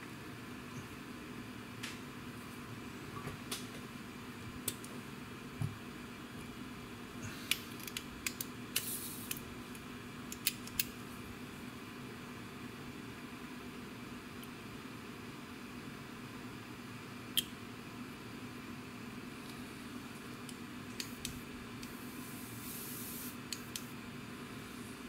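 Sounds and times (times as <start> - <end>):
faint hum: 0.0 - 25.0
short hiss: 22.1 - 23.4.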